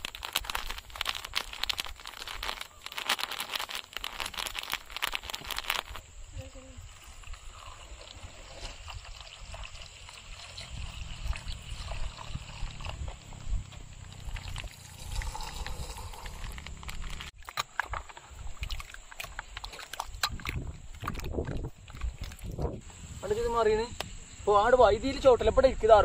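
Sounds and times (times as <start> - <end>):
milk pouring over ice: 6.9 - 13.2, 14.1 - 17.4
wind on microphone: 8.8 - 17.3, 20.2 - 24.5.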